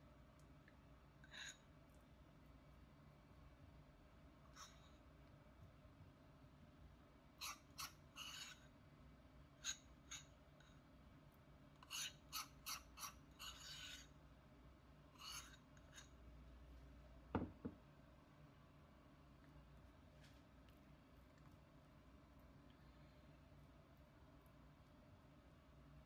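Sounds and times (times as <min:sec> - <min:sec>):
metal spoon scraping ceramic bowl: 0:11.8 - 0:14.1, 0:15.2 - 0:16.2
light knocks: 0:17.3 - 0:17.8.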